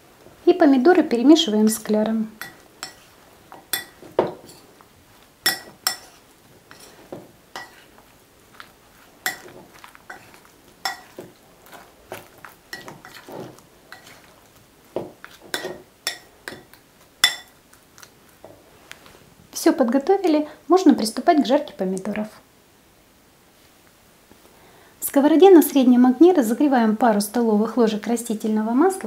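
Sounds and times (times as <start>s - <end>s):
fork clinking on glass bowl: 2.4s - 4.6s, 5.4s - 6.9s, 7.6s - 7.9s, 9.2s - 11.3s, 15.5s - 17.6s.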